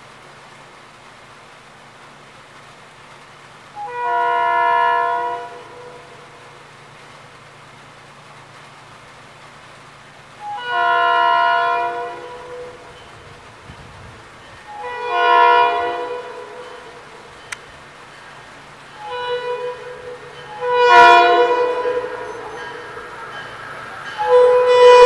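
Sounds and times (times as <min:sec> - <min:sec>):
train air horn blasts: 0:03.8 - 0:06.7, 0:10.4 - 0:25.0.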